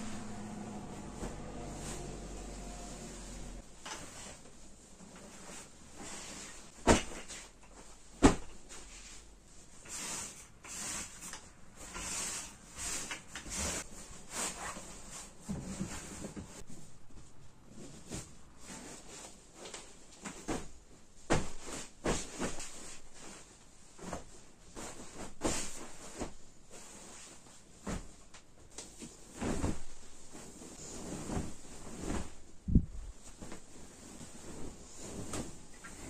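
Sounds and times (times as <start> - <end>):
bedding rustling: 0.0 - 36.0.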